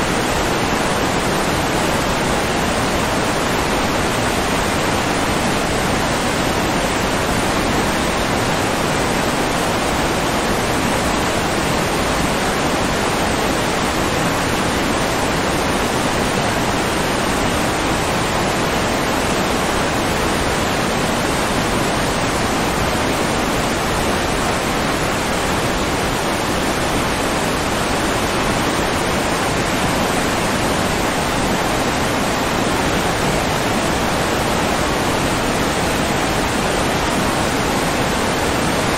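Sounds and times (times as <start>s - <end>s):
rushing water: 0.0s - 38.9s.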